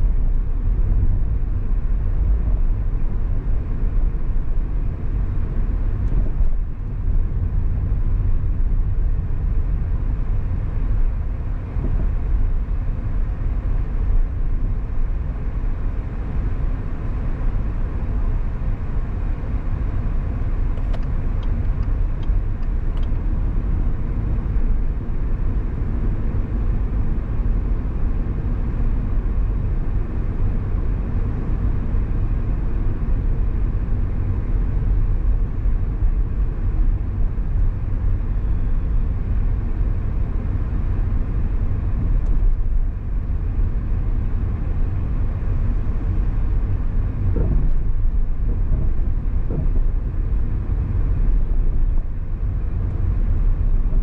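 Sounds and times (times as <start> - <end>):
car engine rumble: 0.0 - 54.0
road noise: 0.0 - 54.0.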